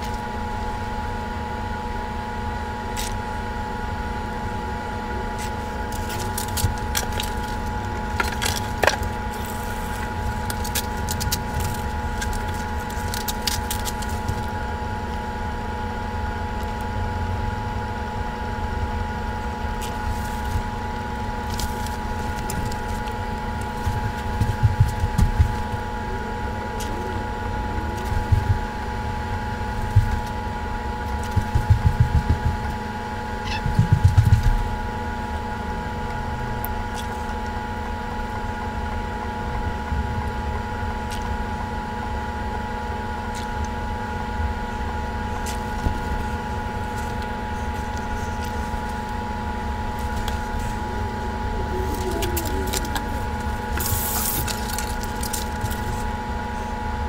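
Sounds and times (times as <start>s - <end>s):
machine-like hum: 0.0s - 57.0s
low rumbling: 44.3s - 56.0s.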